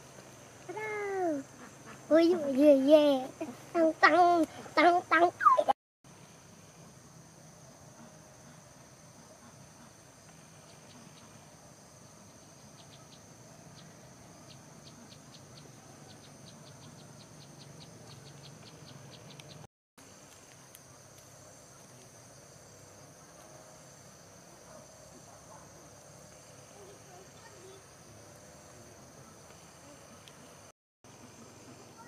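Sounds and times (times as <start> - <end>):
insects trilling: 0.6 - 32.0
insect chirping ticks: 8.0 - 22.9.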